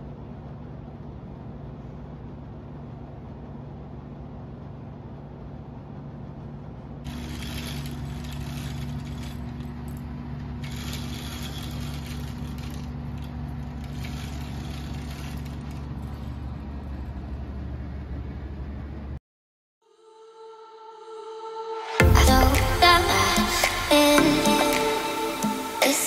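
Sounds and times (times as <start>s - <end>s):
steady mechanical hum: 0.0s - 19.2s, 21.9s - 26.0s
wavering rushing noise: 20.9s - 26.0s
held low tones: 22.0s - 26.0s.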